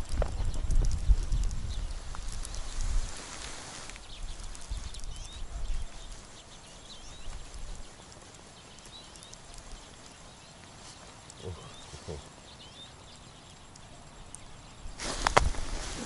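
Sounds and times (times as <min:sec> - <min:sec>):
wind buffeting microphone: 0:00.0 - 0:08.9, 0:14.4 - 0:16.0.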